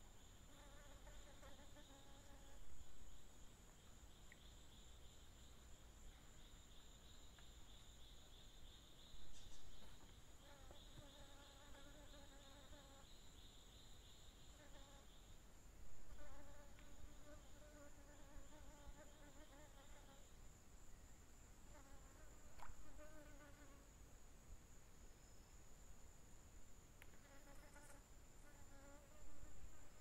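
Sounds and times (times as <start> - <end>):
pulsing insect trill: 0.0 - 15.4
flying insect buzzing: 0.4 - 2.8, 9.4 - 13.1, 14.4 - 15.2, 16.1 - 20.3, 21.7 - 23.9, 27.1 - 30.0.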